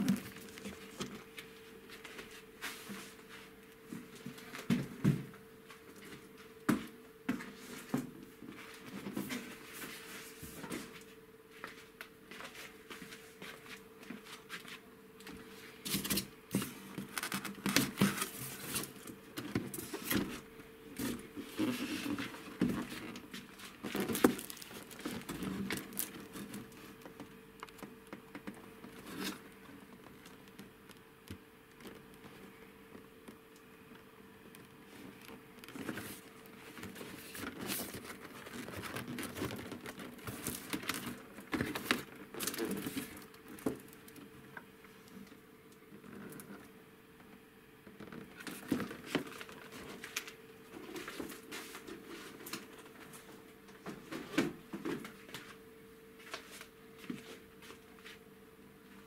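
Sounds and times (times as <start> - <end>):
faint steady hum: 0.0 - 59.0
cardboard packaging rustling: 15.7 - 31.0, 34.9 - 44.2.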